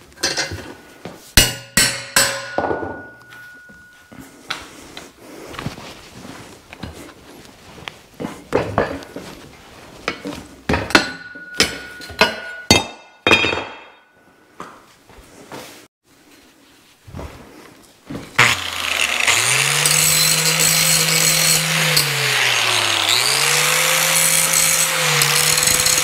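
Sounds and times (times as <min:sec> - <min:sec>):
steel plate clanking against pipe: 0:01.4 - 0:03.9
metal pipe ringing: 0:01.4 - 0:04.2, 0:10.9 - 0:14.2.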